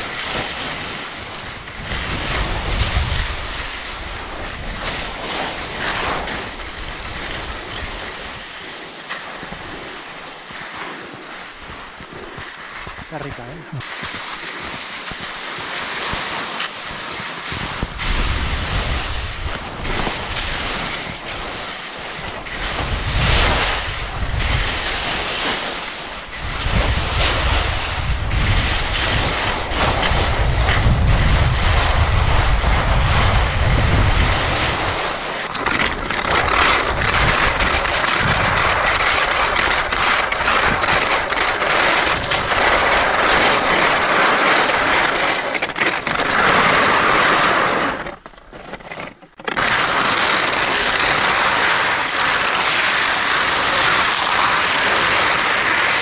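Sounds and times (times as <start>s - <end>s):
wind buffeting microphone: 0.0s - 8.5s, 17.4s - 45.1s.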